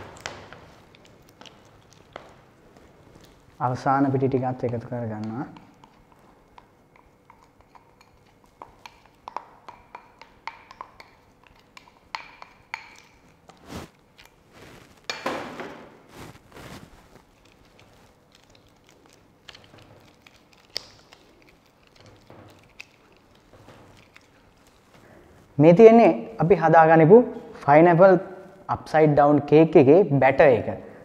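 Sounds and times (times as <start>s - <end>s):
spatula clicking on glass bowl: 4.6s - 13.2s
batter being folded and scraped: 13.3s - 24.9s.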